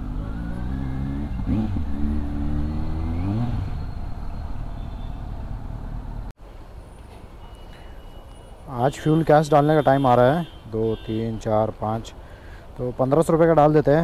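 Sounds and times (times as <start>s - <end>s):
motorcycle engine revving: 0.0s - 4.7s.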